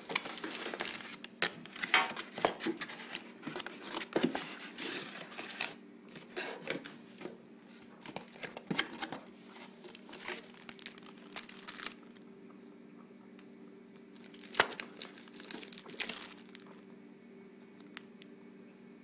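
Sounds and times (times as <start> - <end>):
plastic bag crinkling: 0.0 - 6.3, 8.0 - 12.2, 14.2 - 16.8
cardboard and paper rustling: 0.0 - 12.2, 14.2 - 16.8.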